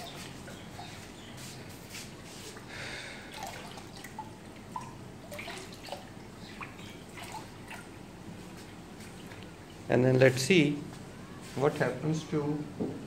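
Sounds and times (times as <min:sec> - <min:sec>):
water dripping and splashing: 0:02.4 - 0:09.8.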